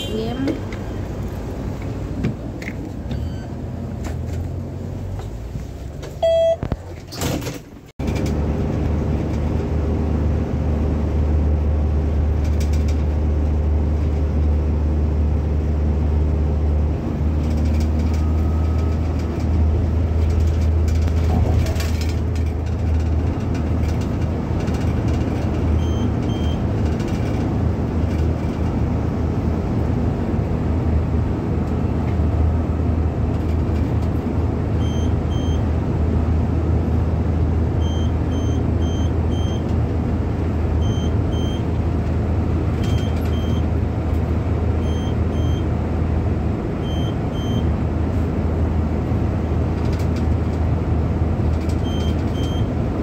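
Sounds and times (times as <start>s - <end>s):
road noise: 0.0s - 53.0s
short electronic beep: 3.2s - 3.6s, 6.2s - 6.7s.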